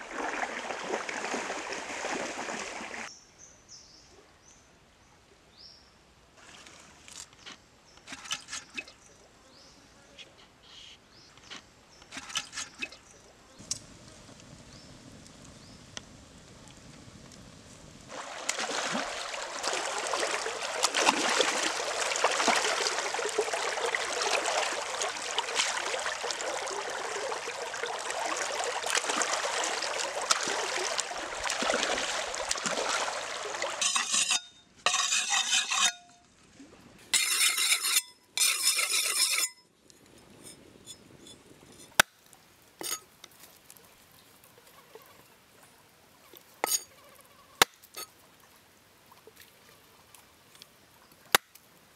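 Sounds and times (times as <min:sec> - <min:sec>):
water splashing and sloshing: 0:00.0 - 0:03.1, 0:06.4 - 0:09.1, 0:11.4 - 0:46.9, 0:47.6 - 0:51.9
knife scraping on wet stone: 0:08.1 - 0:08.9, 0:12.1 - 0:13.0, 0:33.8 - 0:36.2, 0:37.1 - 0:42.1, 0:42.8 - 0:43.1, 0:46.6 - 0:46.9.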